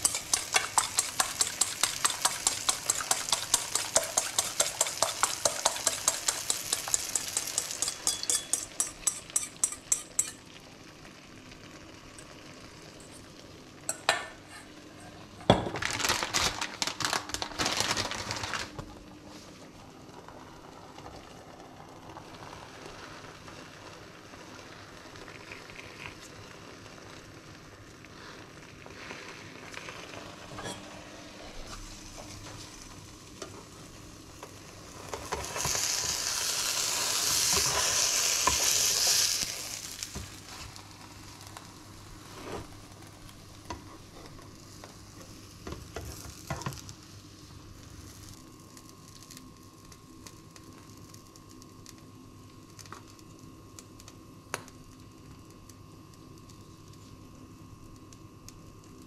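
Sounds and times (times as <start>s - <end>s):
fork beating eggs in metal bowl: 0.0s - 10.4s
frying pan sizzling: 0.0s - 54.7s
plastic package crinkling: 15.6s - 18.8s.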